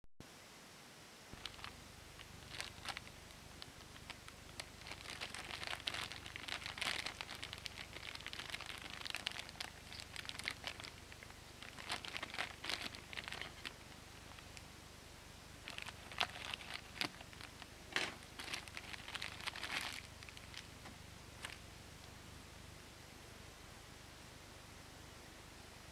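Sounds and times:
plastic bag crinkling: 1.4 - 14.6, 15.6 - 20.7.

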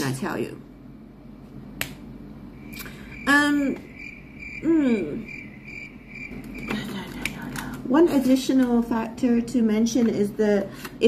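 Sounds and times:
high pulsing chirp: 2.4 - 7.2
woman humming: 4.6 - 5.4.

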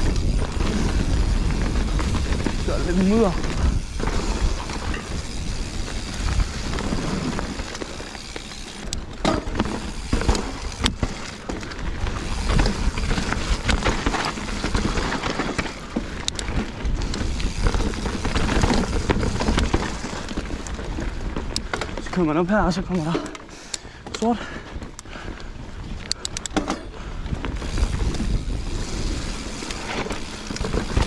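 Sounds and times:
bike knocking over bumps: 0.0 - 22.5
bike chain and frame rattling: 0.0 - 31.0
bike tyre noise on dirt: 0.0 - 31.0.

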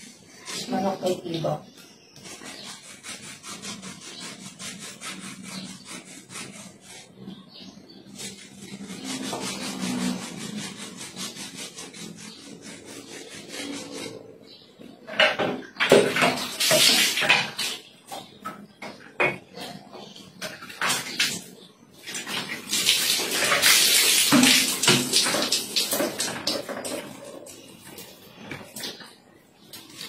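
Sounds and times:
brush scrubbing toilet bowl: 0.0 - 14.6, 22.1 - 30.0.

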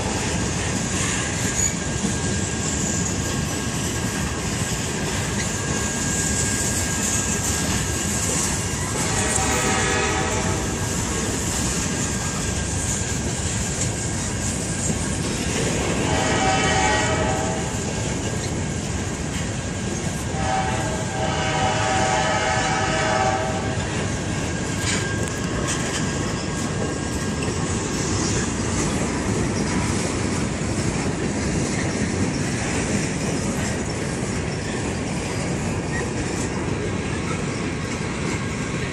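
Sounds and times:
freight cars rumbling on rails: 0.0 - 38.9
train air horn: 8.8 - 10.9, 15.8 - 18.0, 20.3 - 24.1.

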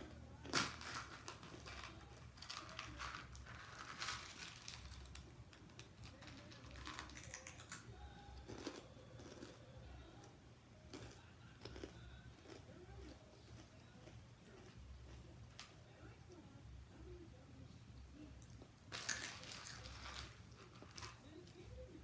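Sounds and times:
crunchy chewing: 8.4 - 10.3, 10.9 - 15.7.

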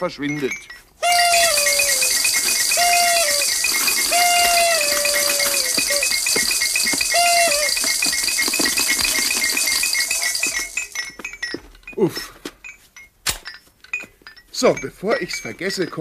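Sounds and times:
sliding whistling tones: 1.0 - 11.1
electronic beeping pattern: 1.1 - 11.2.

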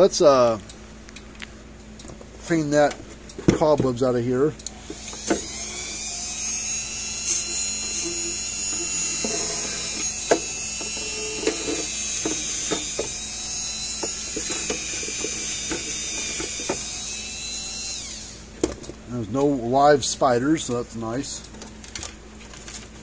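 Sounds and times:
rotary tool whining: 4.6 - 18.6.

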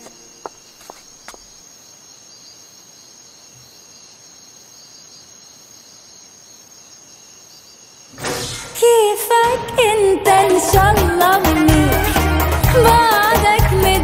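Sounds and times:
insects chirring: 0.0 - 9.9.

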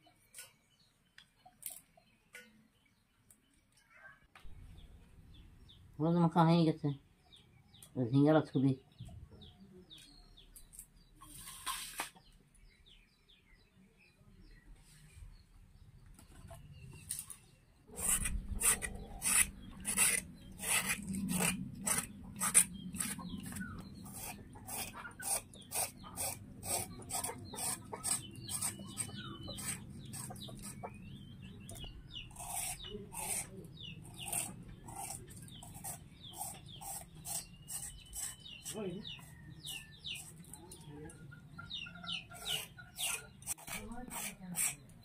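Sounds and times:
birds chirping faintly: 0.0 - 45.0
rhythmic scraping strokes: 17.9 - 31.0.

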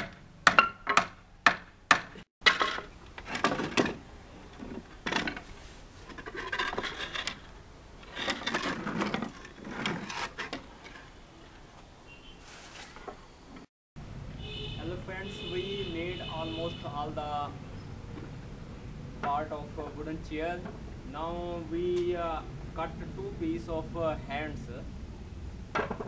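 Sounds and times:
hammer driving nails into wood: 0.0 - 2.2
wooden boards scraping and knocking: 0.0 - 11.7, 25.7 - 26.0.

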